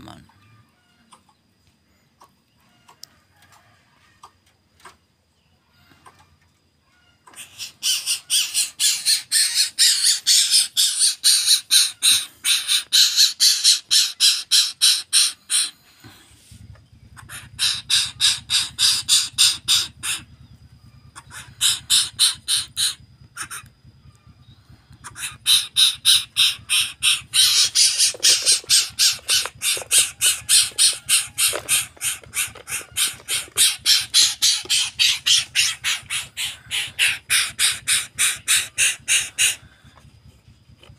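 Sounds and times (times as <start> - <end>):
bird giving harsh rasping calls: 7.3 - 16.1, 17.1 - 20.5, 21.1 - 23.7, 24.9 - 40.0.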